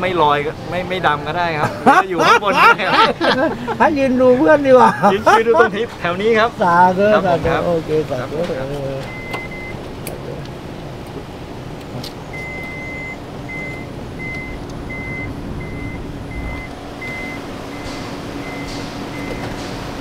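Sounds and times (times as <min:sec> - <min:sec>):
vehicle low hum: 0:00.0 - 0:20.0
electronic warning beeps: 0:09.0 - 0:09.8, 0:12.3 - 0:19.6.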